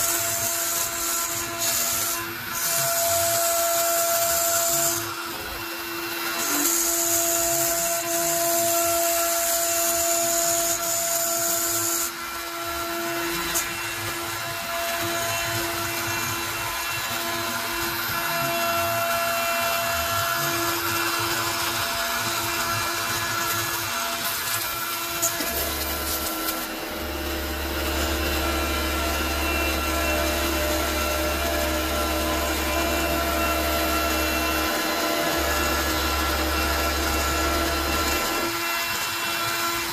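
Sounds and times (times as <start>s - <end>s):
router spindle whine with cutting hiss: 0.0s - 39.9s.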